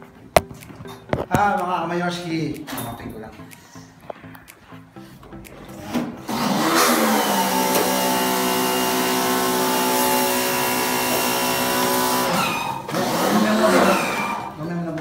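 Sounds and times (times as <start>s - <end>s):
motor whirring hum: 6.2s - 14.5s.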